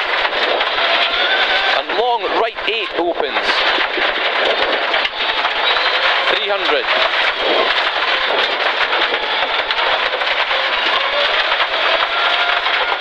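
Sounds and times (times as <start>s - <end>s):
rally car engine running hard: 0.0s - 13.0s
stones pelting car underbody: 0.0s - 13.0s.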